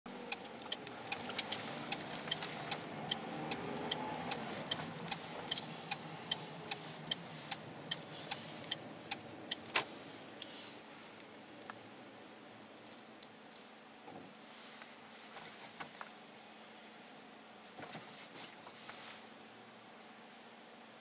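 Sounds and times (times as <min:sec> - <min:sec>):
car engine and road noise: 0:00.0 - 0:21.0
turn signal ticking: 0:00.1 - 0:10.5.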